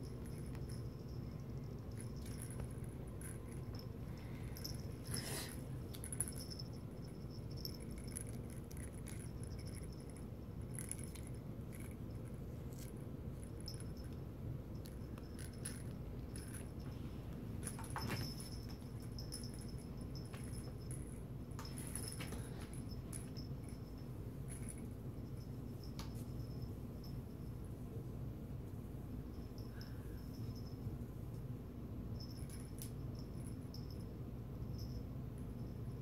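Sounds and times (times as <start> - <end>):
small jingle bell jingling: 0.0 - 27.7, 29.3 - 31.0, 32.1 - 36.0
soft rustling on cushion: 15.0 - 24.9.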